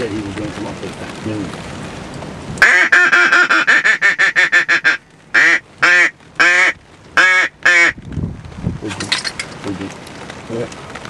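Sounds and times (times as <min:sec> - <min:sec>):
duck call quacks: 0:02.6 - 0:08.0.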